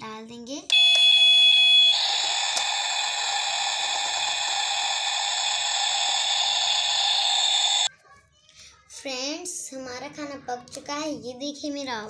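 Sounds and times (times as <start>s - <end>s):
toy stove frying hiss effect: 1.9s - 7.9s.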